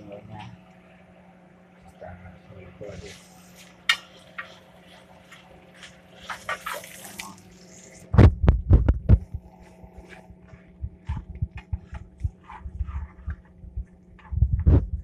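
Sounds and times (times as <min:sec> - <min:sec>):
faint steady hum: 0:00.0 - 0:15.0
deep thumps and knocks: 0:08.2 - 0:09.5, 0:10.7 - 0:15.0.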